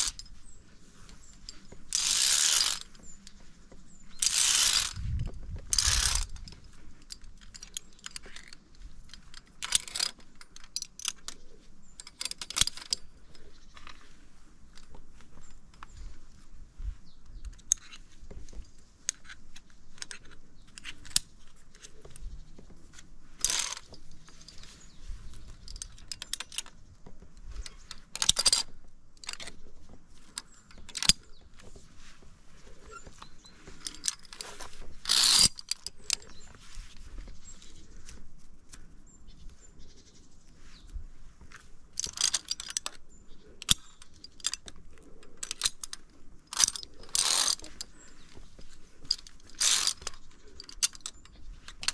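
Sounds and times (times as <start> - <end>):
carabiner scraping on steel cable: 0.0 - 14.1, 17.5 - 32.0, 32.6 - 51.9
carabiners clicking: 0.0 - 16.0, 17.2 - 32.0, 32.6 - 38.3, 40.8 - 51.9.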